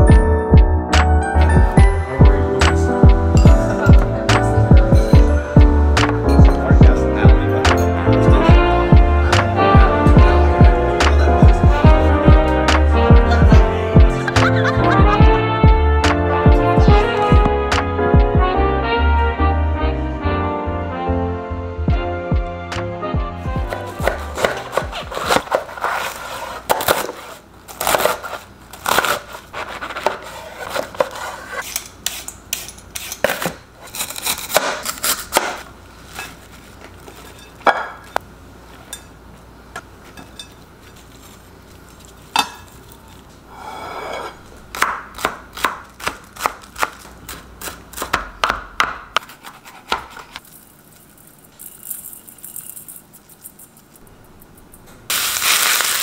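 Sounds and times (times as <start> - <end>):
knife chopping on cutting board: 23.6 - 25.7, 44.7 - 50.4
dishes and utensils clinking: 36.1 - 38.2, 38.8 - 39.2, 39.8 - 41.4, 42.2 - 43.2.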